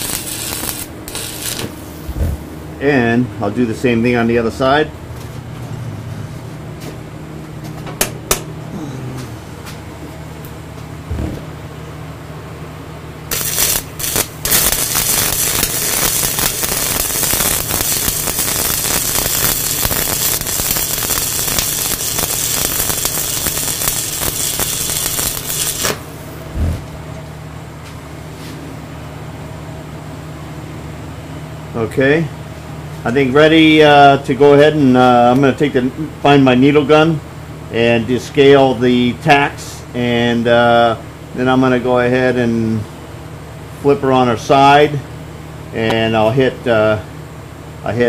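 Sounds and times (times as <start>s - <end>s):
welding arc sputtering and crackling: 0.0s - 2.5s, 13.3s - 26.3s
steady low hum: 0.0s - 48.0s.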